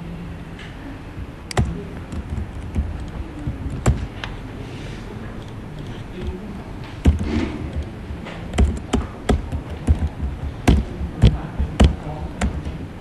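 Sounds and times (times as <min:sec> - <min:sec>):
keyboard keystrokes clicking: 0:01.5 - 0:04.4, 0:05.4 - 0:12.9.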